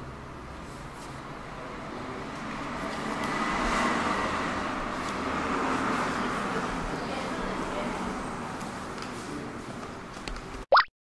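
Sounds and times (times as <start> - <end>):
vehicle passing by: 1.2 - 9.7.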